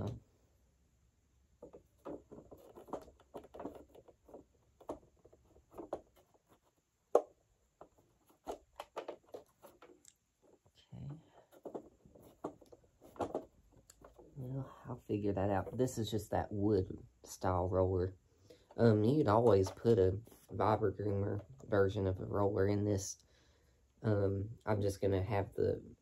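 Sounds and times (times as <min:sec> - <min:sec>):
plastic parts clicking and tapping: 0:07.1 - 0:10.7, 0:11.4 - 0:14.4.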